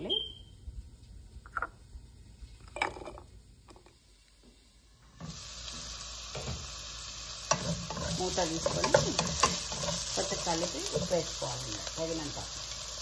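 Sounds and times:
vegetables sizzling in oil: 0:04.5 - 0:13.0.

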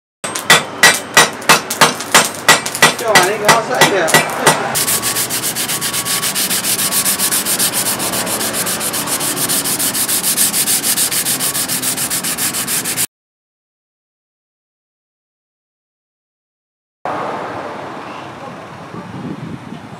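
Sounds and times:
abrasive block scraping blade: 0:02.2 - 0:13.1.

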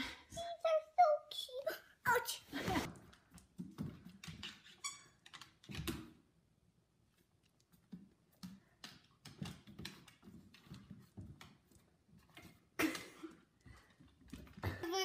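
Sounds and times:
dog claws clicking on hardwood floor: 0:07.4 - 0:12.6.

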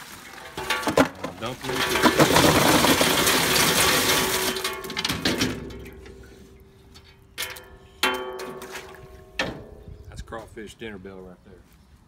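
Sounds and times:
crawfish clattering down metal chute: 0:00.2 - 0:06.3, 0:07.1 - 0:09.7
ringing metal clangs: 0:04.1 - 0:10.0.

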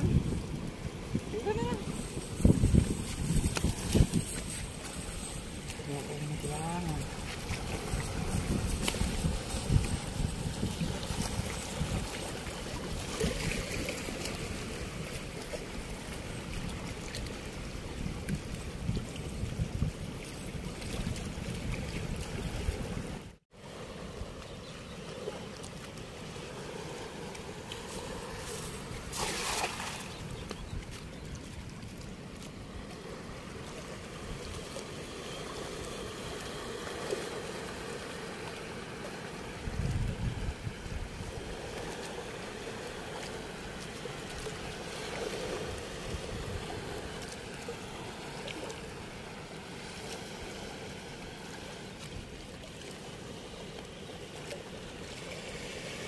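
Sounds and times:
floodwater rushing through sluice gate: 0:00.0 - 0:02.4, 0:25.1 - 0:31.0
wind rumbling on microphone: 0:00.0 - 0:23.4, 0:39.4 - 0:53.4.

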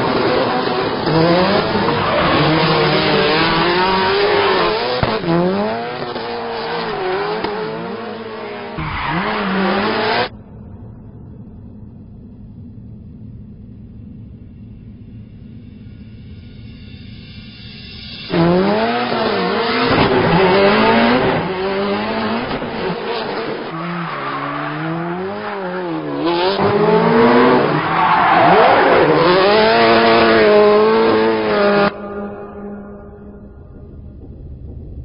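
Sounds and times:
rally car engine revving: 0:00.0 - 0:10.3, 0:18.3 - 0:33.5.

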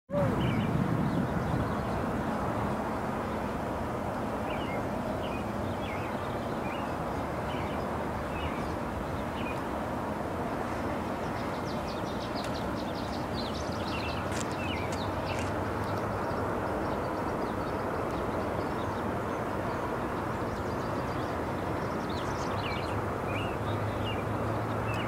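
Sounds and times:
small birds chirping: 0:00.1 - 0:09.9, 0:10.5 - 0:25.0.

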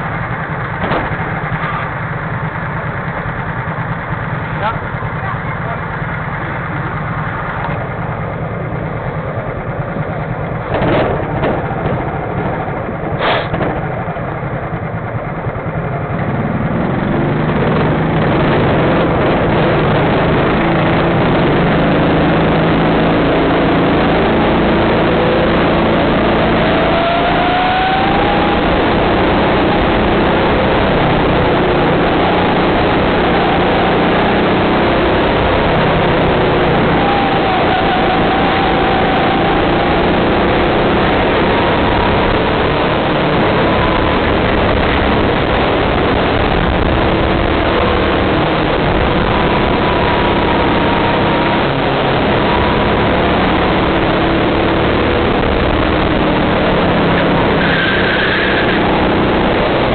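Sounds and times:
engine knocks: 0:00.0 - 0:23.1
go-kart engine revving: 0:00.0 - 0:59.9.

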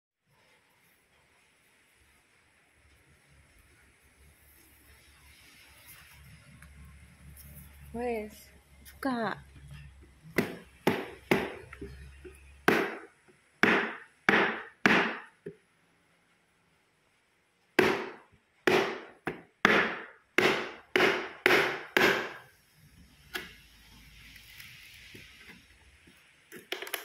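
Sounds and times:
hammer striking wooden slats: 0:10.4 - 0:11.6, 0:12.7 - 0:15.3, 0:17.8 - 0:22.4.

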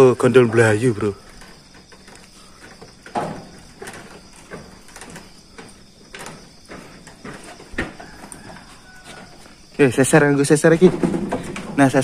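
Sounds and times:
crickets chirring: 0:00.0 - 0:12.0
knocks and scrapes: 0:00.4 - 0:09.8, 0:10.6 - 0:12.0.

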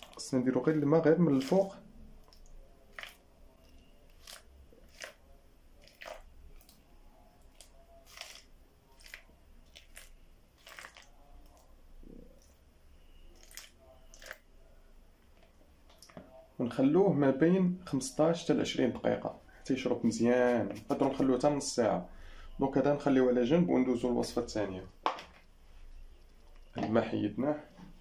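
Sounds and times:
water splashing onto couscous: 0:04.1 - 0:05.2, 0:05.8 - 0:06.8, 0:07.4 - 0:11.7, 0:13.3 - 0:14.4.

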